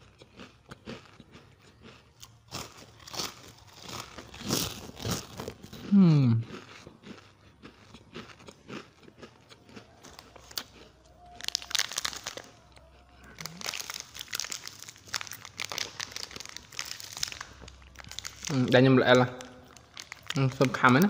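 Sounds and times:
plastic wrappers crinkling: 2.5s - 5.8s, 10.0s - 21.0s.

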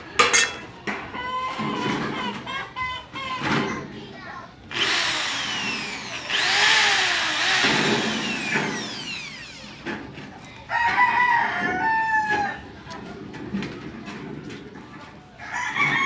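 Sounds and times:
electric drill boring into metal: 4.7s - 9.9s
rooster crowing: 10.7s - 12.6s, 15.4s - 16.0s.

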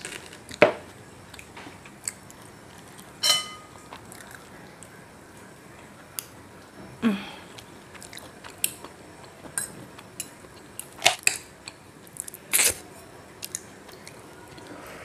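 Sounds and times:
soft chewing: 1.2s - 6.8s, 7.5s - 15.0s
metal spoon clinking on plate: 3.2s - 3.7s.

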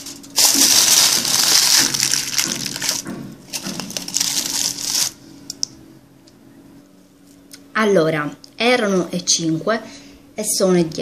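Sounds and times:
aluminium foil crinkling: 0.0s - 5.2s.

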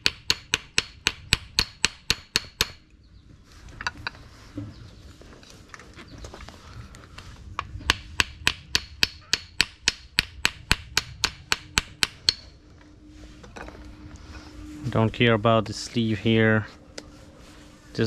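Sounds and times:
hammer strikes: 0.0s - 2.8s, 7.8s - 12.6s.

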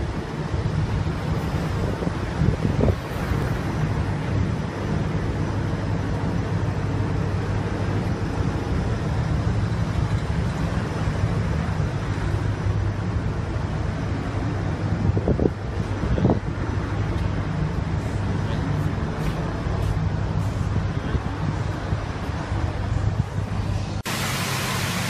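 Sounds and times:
car wash machine humming: 0.0s - 25.0s
rushing hiss: 24.0s - 25.0s.

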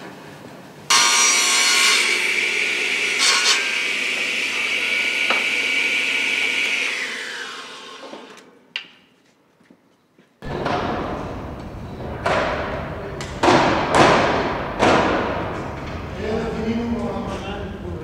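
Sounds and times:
woodworking machine whining: 0.9s - 8.6s
knocks: 12.1s - 16.0s.

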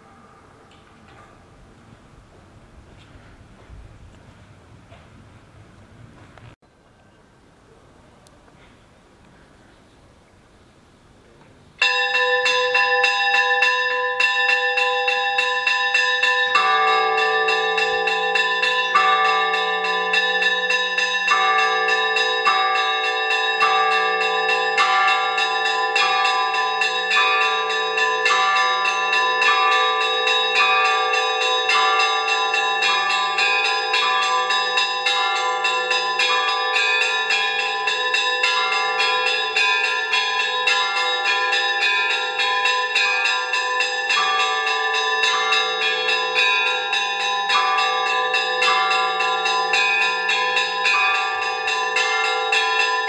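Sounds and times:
small bells ringing rapidly: 11.8s - 53.0s.

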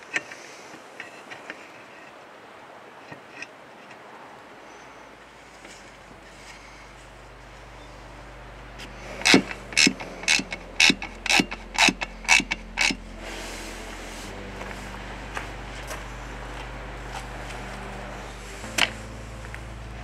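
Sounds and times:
ratchet wrench clicking: 9.2s - 13.0s.

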